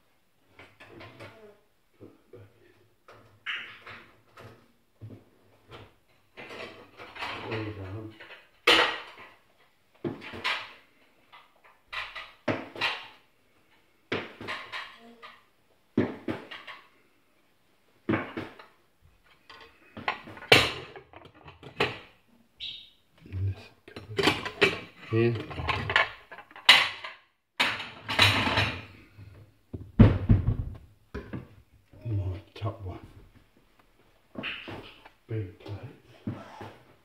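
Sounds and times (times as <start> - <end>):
dishes and cutlery clinking: 23.9 - 28.9.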